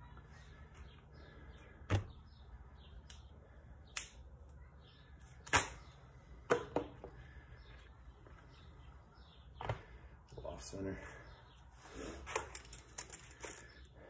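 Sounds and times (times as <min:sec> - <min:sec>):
sharp clicks: 0:03.9 - 0:04.2.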